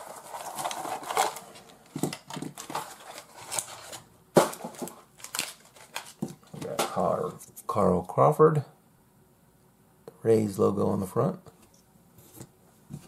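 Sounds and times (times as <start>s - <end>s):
foil pack crinkling: 0.0s - 6.8s.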